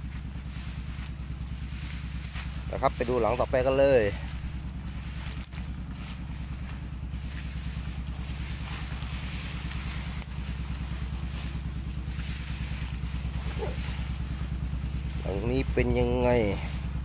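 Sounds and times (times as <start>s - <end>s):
footsteps through tall grass: 0.0s - 17.0s
steady low rumble: 0.0s - 17.0s.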